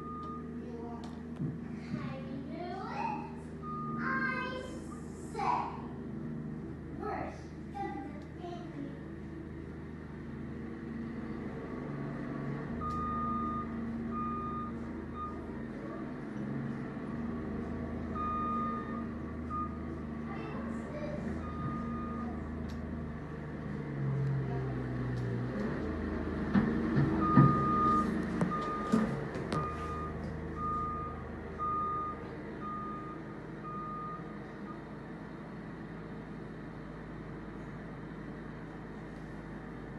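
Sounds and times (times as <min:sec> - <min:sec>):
reversing alarm beeps: 0:00.0 - 0:00.5, 0:03.6 - 0:04.3, 0:12.8 - 0:15.5, 0:18.1 - 0:19.8, 0:21.3 - 0:22.3, 0:27.2 - 0:28.9, 0:29.6 - 0:34.8
diesel engine running: 0:00.0 - 0:39.9.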